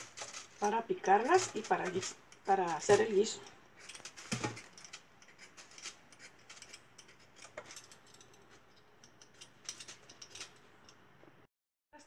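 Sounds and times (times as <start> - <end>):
vegetable peeler scraping potato: 0.0 - 3.4.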